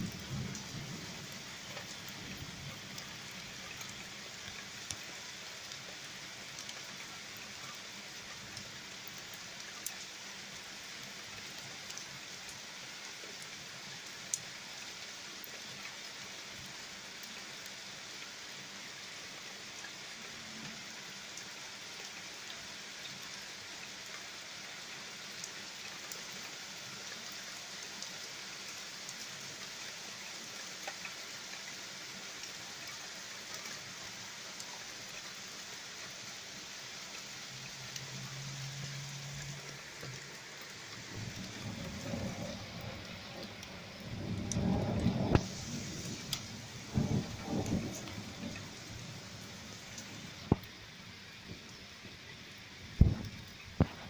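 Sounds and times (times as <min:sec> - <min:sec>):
steady rain hissing: 0:00.0 - 0:54.0.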